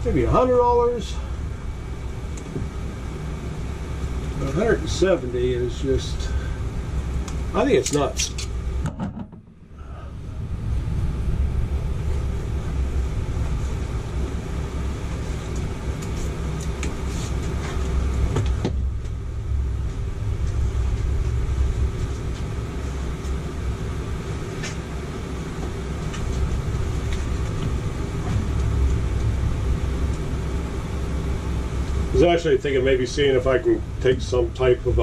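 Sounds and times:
air conditioner humming: 0:00.0 - 0:35.0
rush of air: 0:09.6 - 0:32.2.

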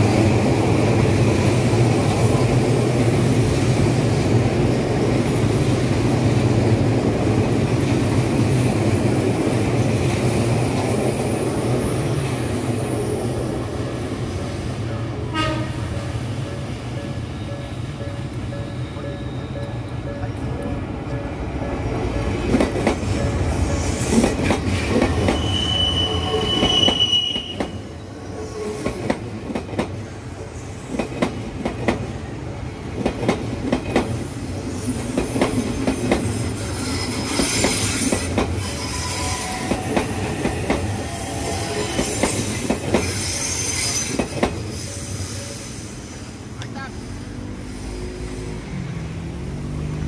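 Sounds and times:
train wheels rumbling: 0:00.0 - 0:50.0
high wheel squeal: 0:25.1 - 0:28.8, 0:36.2 - 0:49.1.

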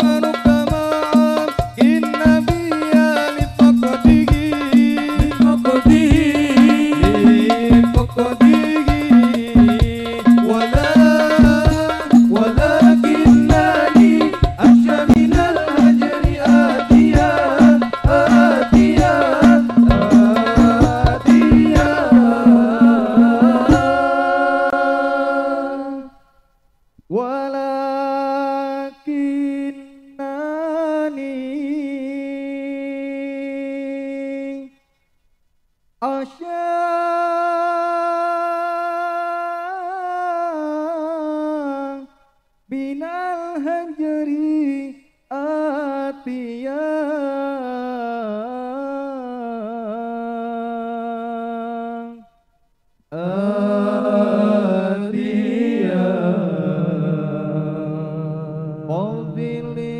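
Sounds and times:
frame drums: 0:00.0 - 0:24.8
man singing unaccompanied: 0:00.0 - 0:26.3, 0:27.0 - 0:34.8, 0:36.0 - 0:52.4, 0:53.1 - 0:59.9.

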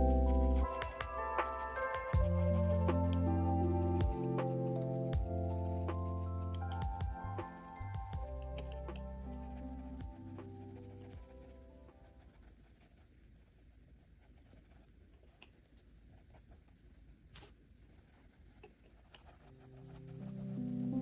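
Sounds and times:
soft background music: 0:00.0 - 0:12.5, 0:19.2 - 0:21.0
marker scratching on paper: 0:00.0 - 0:21.0.

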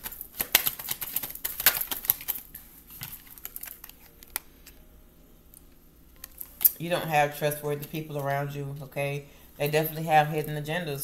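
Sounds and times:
cards being shuffled: 0:00.0 - 0:04.8.

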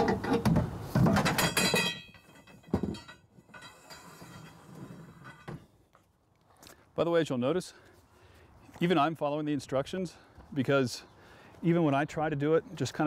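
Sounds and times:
hard objects clattering: 0:00.0 - 0:05.6
metallic ring: 0:01.4 - 0:04.7.

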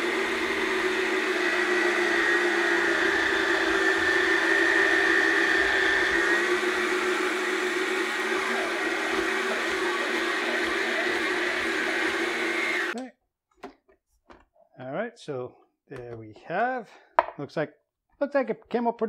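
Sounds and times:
blade shredding frozen fruit: 0:00.0 - 0:13.0
motor whining: 0:00.0 - 0:13.0.

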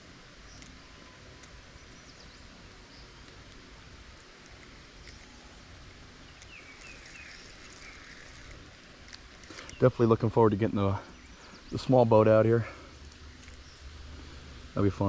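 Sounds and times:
low rumble and hiss: 0:00.0 - 0:15.0
bird chirps: 0:06.3 - 0:08.6.

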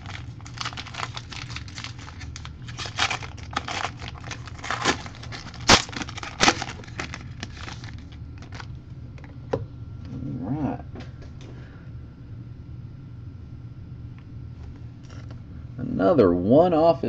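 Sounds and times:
foil wrapper crackling: 0:00.0 - 0:08.7.

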